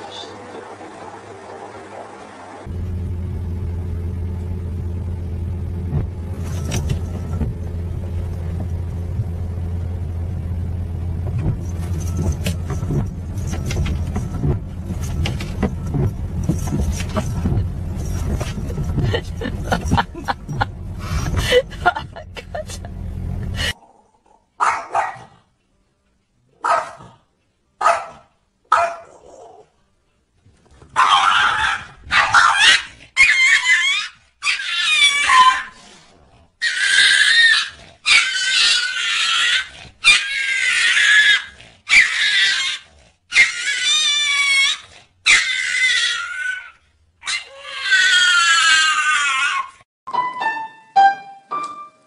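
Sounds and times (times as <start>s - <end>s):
animal crying out: 31.0s - 35.8s, 36.6s - 49.8s.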